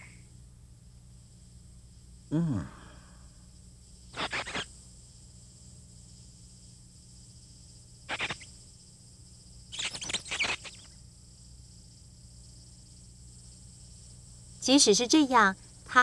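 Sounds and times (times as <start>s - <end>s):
cartoon mouse squeaking: 8.1s - 8.5s, 9.7s - 10.9s.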